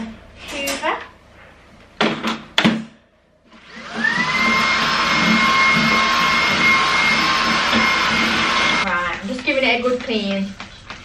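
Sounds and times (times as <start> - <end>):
vacuum cleaner motor whine: 3.5 - 8.8.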